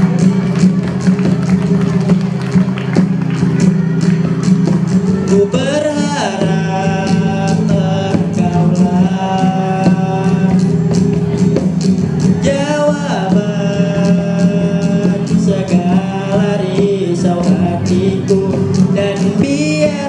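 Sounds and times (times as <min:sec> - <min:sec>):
acoustic guitar: 0:00.0 - 0:20.0
cajon beat: 0:00.0 - 0:20.0
boy singing: 0:04.9 - 0:10.9, 0:12.4 - 0:20.0.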